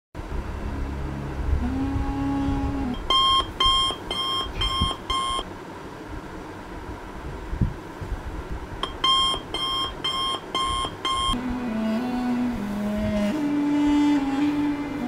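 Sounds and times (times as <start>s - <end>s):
low hum: 0.2s - 6.2s, 6.8s - 15.0s
alarm beeping: 2.9s - 5.4s, 8.8s - 11.4s.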